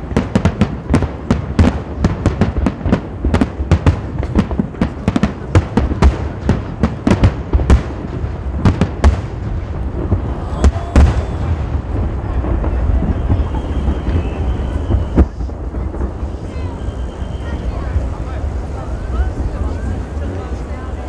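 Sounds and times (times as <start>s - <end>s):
fireworks bangs and crackles: 0.0s - 21.0s
low rumble: 7.4s - 21.0s.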